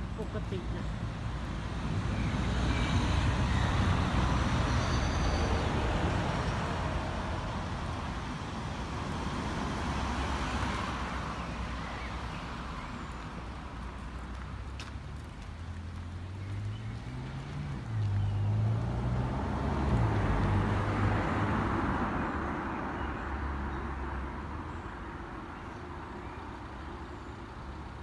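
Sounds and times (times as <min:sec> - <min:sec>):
road traffic noise: 0:00.0 - 0:28.0
vehicle passing: 0:13.4 - 0:24.7.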